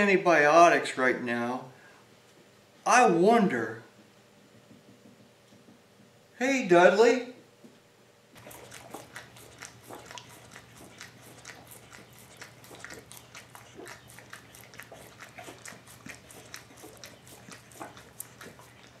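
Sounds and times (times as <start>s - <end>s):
dog licking metal: 8.4s - 19.0s.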